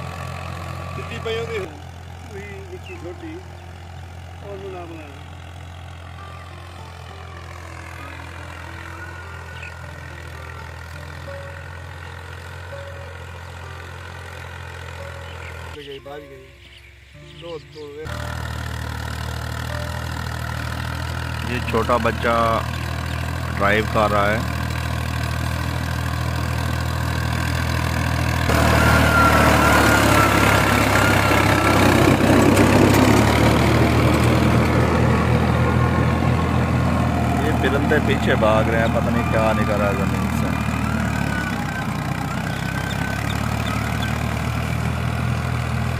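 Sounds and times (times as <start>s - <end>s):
tractor engine droning: 0.0s - 45.9s
wavering high tone: 28.5s - 32.7s.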